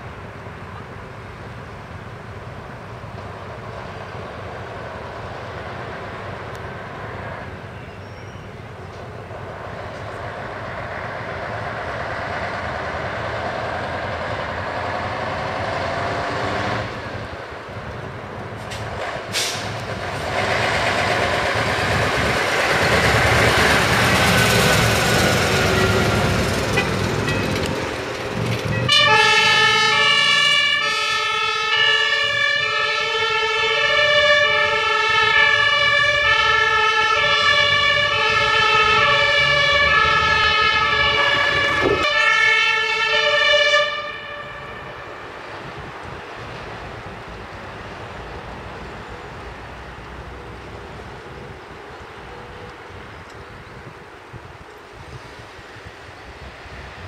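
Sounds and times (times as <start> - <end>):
fire engine driving past: 0.0 - 57.0
two-tone siren: 28.8 - 45.2.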